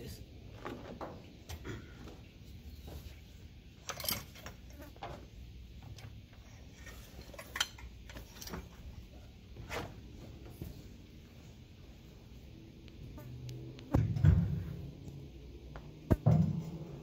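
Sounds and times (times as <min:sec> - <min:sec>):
metallic clinks and knocks: 0:03.8 - 0:04.8, 0:05.9 - 0:08.8.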